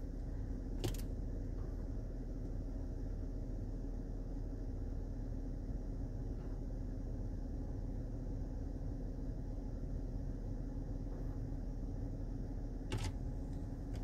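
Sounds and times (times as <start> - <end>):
car cabin rumble: 12.8 - 14.0.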